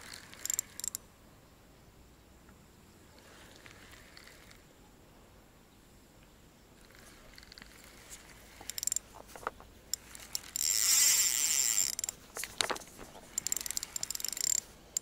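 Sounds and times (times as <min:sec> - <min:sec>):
fishing reel winding: 0:00.0 - 0:01.0, 0:03.6 - 0:04.6, 0:06.8 - 0:09.1, 0:09.9 - 0:15.0.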